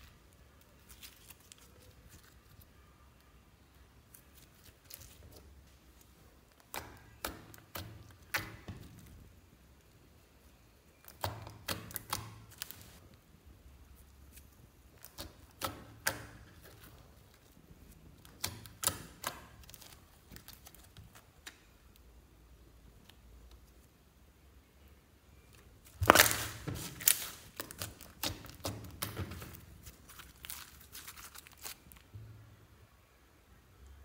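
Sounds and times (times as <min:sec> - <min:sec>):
slime squishing: 0:00.0 - 0:13.0, 0:13.8 - 0:21.8, 0:25.5 - 0:32.1
slime popping: 0:25.9 - 0:31.8.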